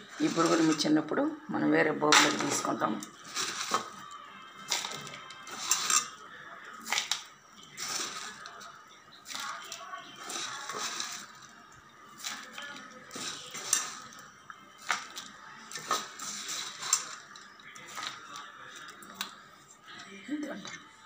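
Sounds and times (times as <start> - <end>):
dry rustle of puffed rice: 0.0 - 0.8, 3.2 - 4.0, 7.7 - 8.7, 9.3 - 11.5, 12.1 - 14.2, 14.8 - 18.9.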